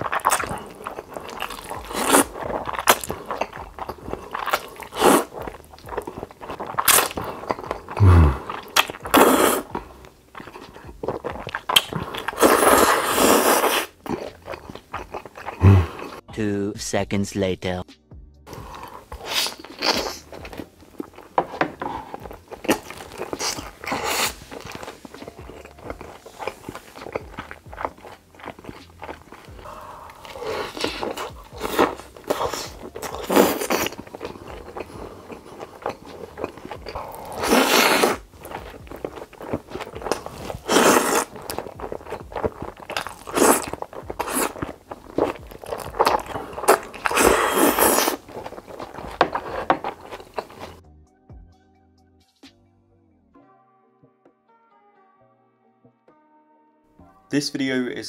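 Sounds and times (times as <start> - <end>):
noodles being slurped: 0.0 - 16.2, 18.5 - 50.8
man chewing crunchy food: 0.0 - 16.3, 18.5 - 50.8.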